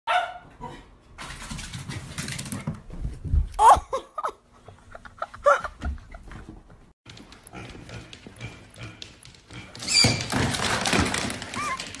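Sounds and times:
small dog barking: 0.1s - 0.5s.

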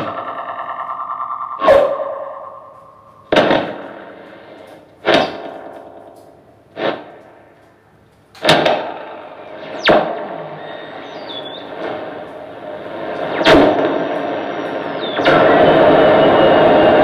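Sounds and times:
distorted guitar amp hits: 0.0s - 4.4s, 5.0s - 6.2s.

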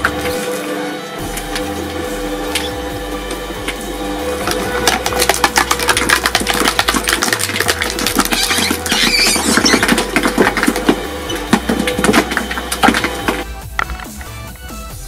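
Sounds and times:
plastic cracking in shredder: 0.0s - 14.7s
machine drive hum: 0.0s - 14.8s
high squeal: 8.3s - 10.0s.

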